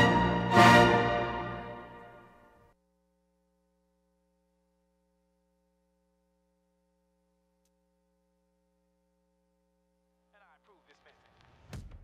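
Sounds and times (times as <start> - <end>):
performance music: 0.0 - 2.6.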